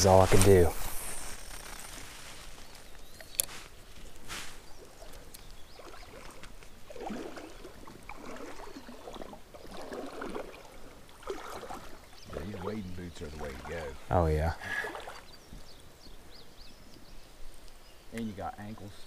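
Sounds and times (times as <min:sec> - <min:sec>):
rod handling sounds: 0:00.0 - 0:05.6
quiet riverside ambience: 0:00.0 - 0:19.0.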